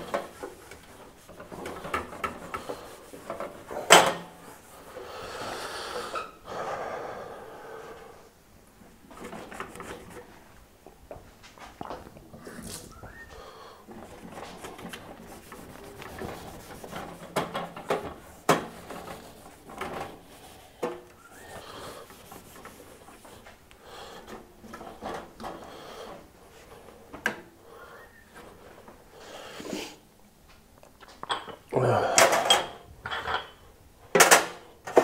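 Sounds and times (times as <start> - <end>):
cloth rubbing: 0.0 - 5.0, 13.9 - 23.6.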